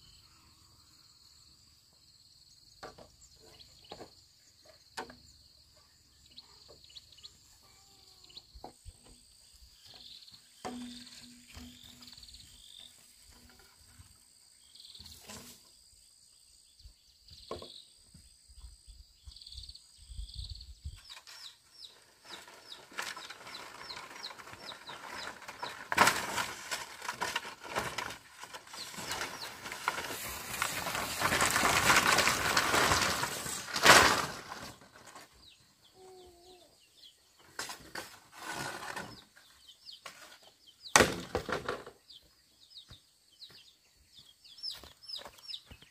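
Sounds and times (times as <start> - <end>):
faint bird and insect calls: 0.0 - 45.9
bamboo poles knocking together: 10.5 - 12.3, 22.3 - 35.2, 40.0 - 42.0
bamboo poles scraping through grass: 14.8 - 15.8, 21.0 - 35.4, 37.6 - 40.6.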